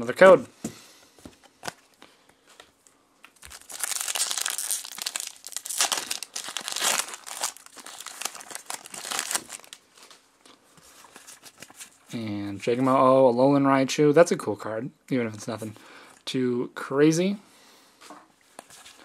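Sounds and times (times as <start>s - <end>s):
foil wrapper tearing and crinkling: 3.4s - 9.8s.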